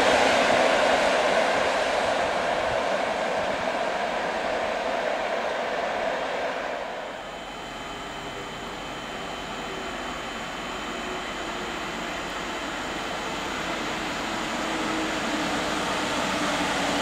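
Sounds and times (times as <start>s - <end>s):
hum with faint whine tones: 0.0s - 17.0s
rushing noise of rail traffic: 0.0s - 17.0s.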